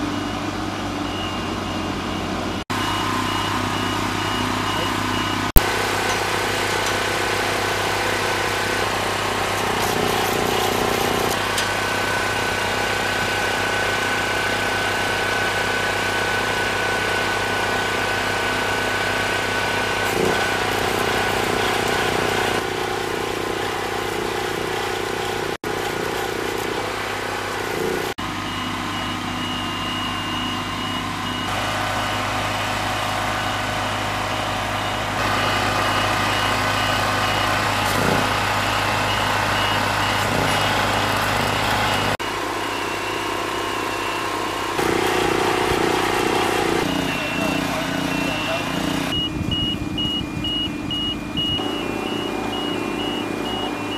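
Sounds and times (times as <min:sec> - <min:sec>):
engine idling: 0:00.0 - 0:53.9
stick welding crackle: 0:08.1 - 0:12.6, 0:19.8 - 0:28.1.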